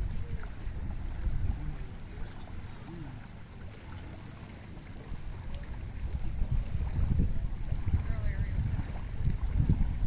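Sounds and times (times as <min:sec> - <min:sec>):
wind rumbling on microphone: 0:00.0 - 0:10.0.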